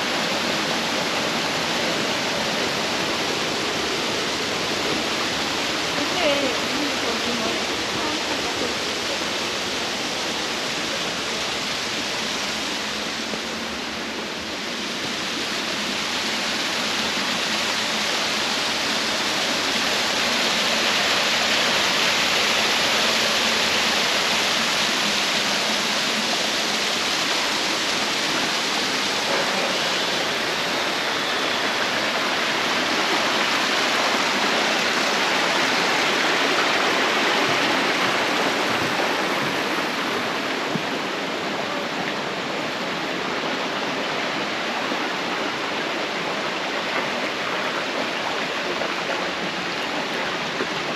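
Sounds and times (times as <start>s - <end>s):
waterfall rushing: 0.0s - 50.9s.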